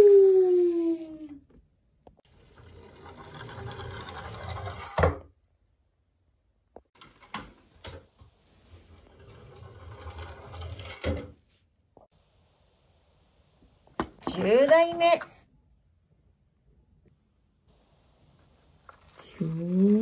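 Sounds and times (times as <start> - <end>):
toy wheels rolling on wood: 2.3 - 5.1, 8.9 - 11.2.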